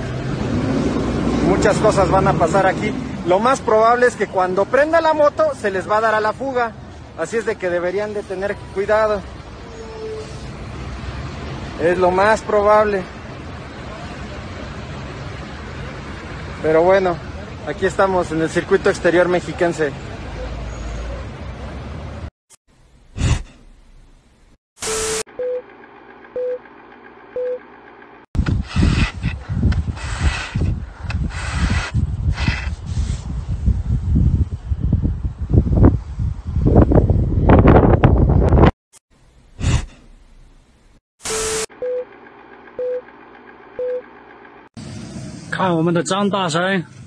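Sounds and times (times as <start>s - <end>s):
countdown beeps: 26.4s - 26.6s, 42.8s - 43.0s, 43.8s - 44.0s
wind buffeting microphone: 28.4s - 38.7s.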